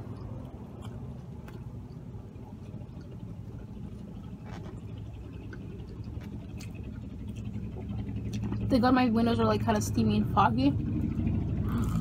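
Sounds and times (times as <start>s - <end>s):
close-up chewing fries: 0.0s - 8.6s
steady low hum: 0.0s - 12.0s.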